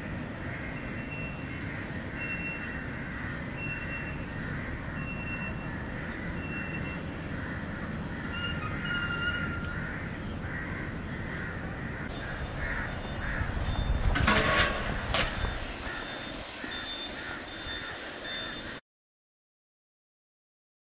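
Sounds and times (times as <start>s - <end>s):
crows cawing: 0.4s - 3.6s, 4.3s - 5.0s, 5.6s - 8.4s, 9.3s - 13.7s, 15.7s - 18.1s
bike grinding on metal handrail: 12.2s - 18.0s.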